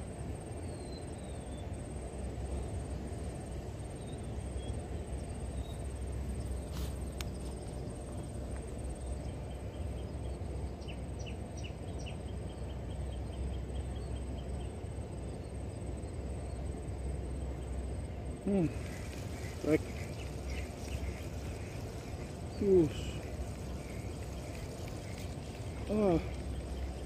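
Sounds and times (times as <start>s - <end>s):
high pulsing insect trill: 0.0s - 27.0s
low rumble: 17.4s - 27.0s.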